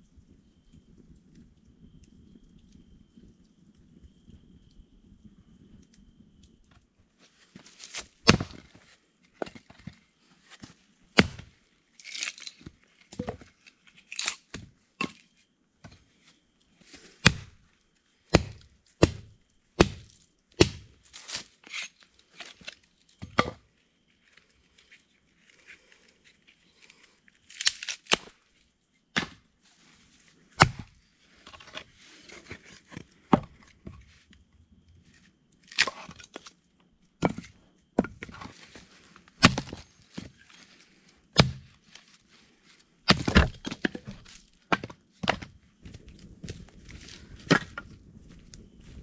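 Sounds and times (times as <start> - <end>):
baton knocking blade through wood: 18.3 - 20.9, 41.4 - 41.7.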